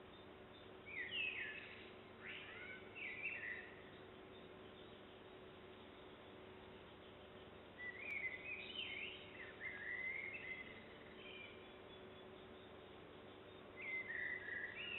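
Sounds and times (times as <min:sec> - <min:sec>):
faint steady hum: 0:00.0 - 0:14.9
songbird whistling phrases: 0:00.9 - 0:03.8, 0:07.8 - 0:11.6, 0:13.8 - 0:14.9.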